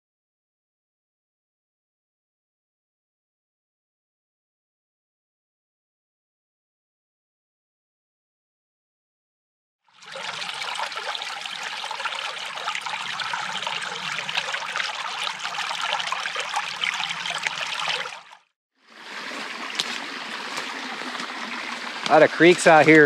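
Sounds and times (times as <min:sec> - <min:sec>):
creek flowing and trickling: 0:09.9 - 0:23.0.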